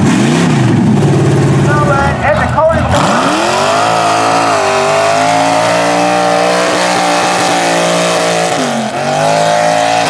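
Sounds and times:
truck engine revving high: 0.0 - 10.0.

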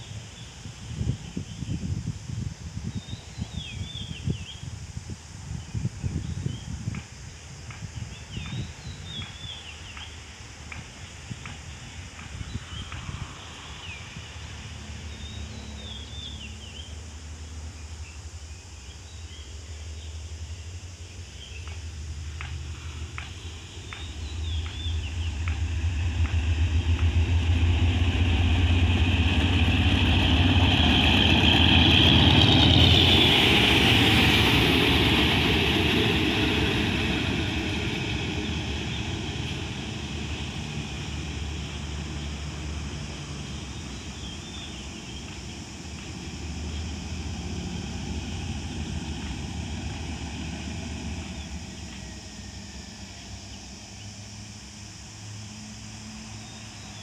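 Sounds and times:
train wheel noise: 6.8 - 15.8, 21.6 - 54.5
locomotive engine drone: 6.8 - 57.0.

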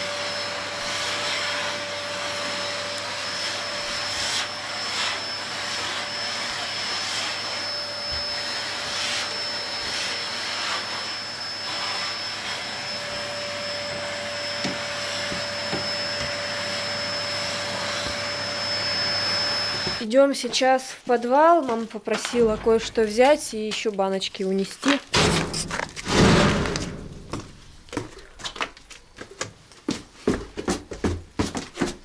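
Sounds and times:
vacuum cleaner running: 0.0 - 20.1.

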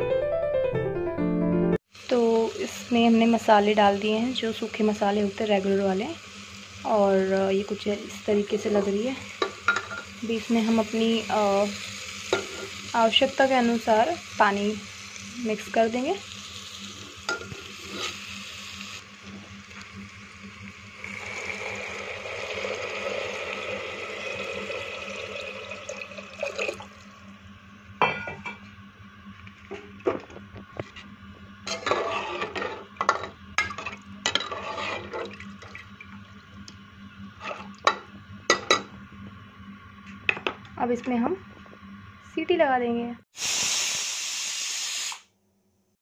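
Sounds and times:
water pouring into pot: 19.7 - 27.2
metal spoon stirring in pot: 33.6 - 35.3.

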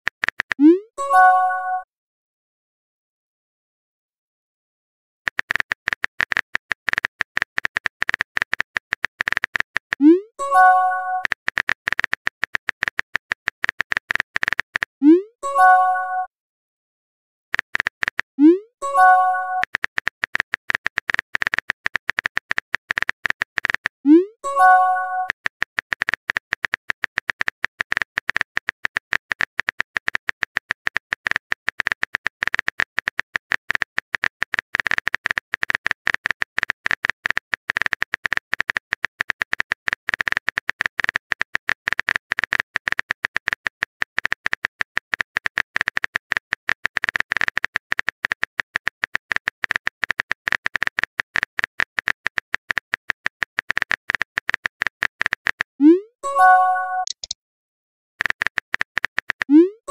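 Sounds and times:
phone keyboard clicks: 0.1 - 0.6, 5.3 - 10.1, 17.5 - 18.3, 19.1 - 24.0, 24.7 - 55.7, 56.4 - 57.4, 58.2 - 59.6.

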